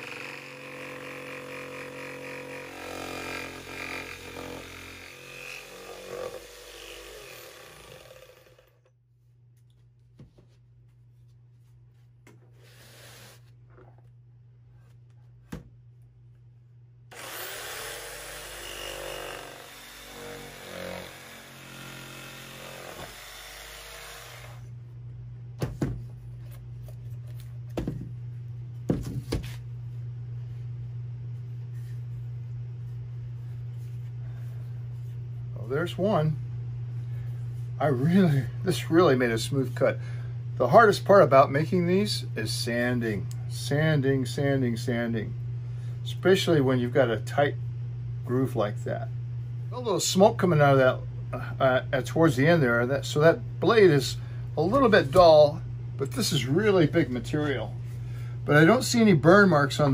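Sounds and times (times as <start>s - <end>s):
jigsaw cutting wood: 0.0s - 8.9s, 17.1s - 24.7s.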